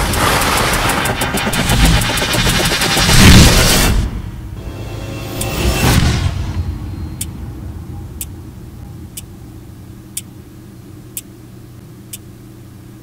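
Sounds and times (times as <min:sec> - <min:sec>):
watch ticking: 0:00.0 - 0:02.9
low droning rumble: 0:00.0 - 0:12.7.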